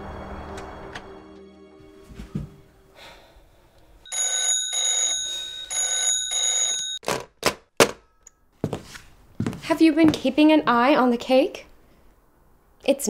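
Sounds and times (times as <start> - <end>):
telephone bell ringing: 4.0 - 7.0.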